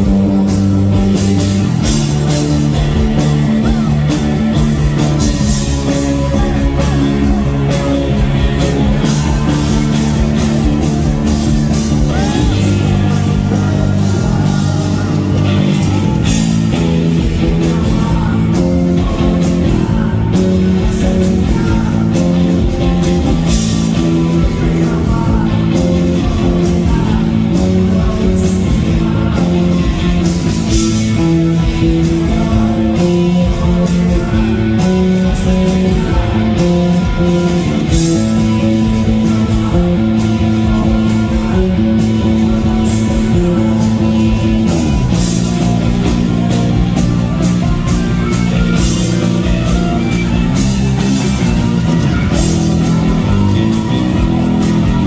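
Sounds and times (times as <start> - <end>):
drum kit: 0.0 - 55.0
electric guitar melody: 0.0 - 55.0.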